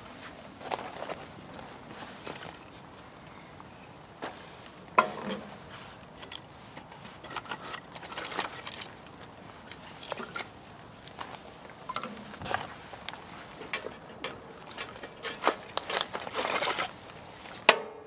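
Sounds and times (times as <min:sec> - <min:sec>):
kindling clunking and rustling: 0:04.2 - 0:17.8.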